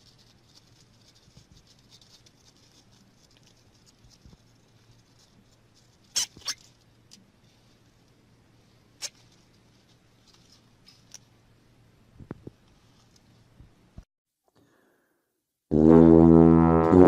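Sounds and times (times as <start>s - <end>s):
hamsters rustling in paper bedding: 0.0s - 6.2s.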